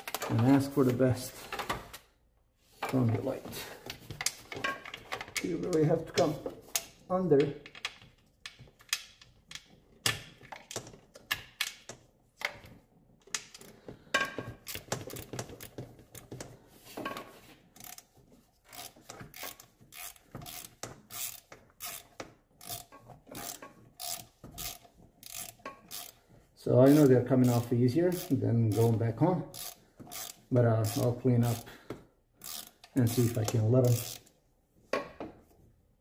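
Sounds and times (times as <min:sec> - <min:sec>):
socket ratchet clicking: 0:18.7 - 0:26.2, 0:26.9 - 0:31.7, 0:32.4 - 0:34.3.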